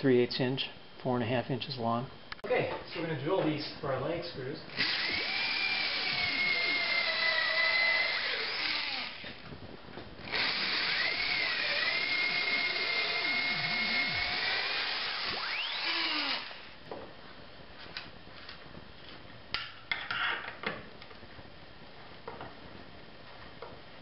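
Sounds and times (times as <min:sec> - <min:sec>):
electric drill motor whine: 0:04.7 - 0:09.4, 0:10.2 - 0:16.8.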